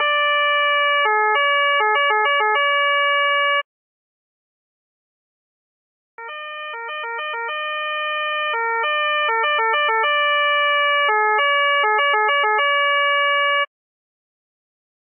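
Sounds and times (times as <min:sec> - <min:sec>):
two-tone police siren: 0:00.0 - 0:03.7, 0:06.2 - 0:13.7.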